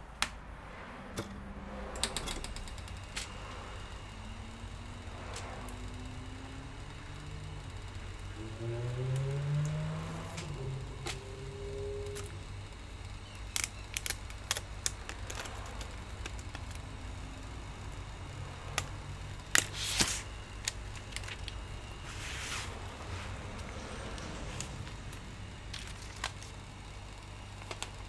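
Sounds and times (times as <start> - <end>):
steady low hum: 0.0 - 28.0
plastic film crackling rustles: 13.2 - 18.0, 18.6 - 26.7.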